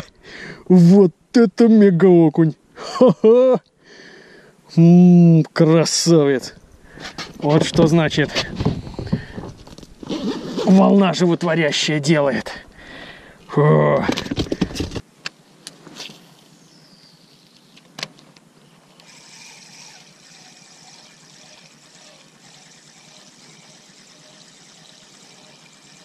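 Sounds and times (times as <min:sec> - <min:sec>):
fishing gear knocking and rattling: 0:06.6 - 0:10.1, 0:14.0 - 0:15.0.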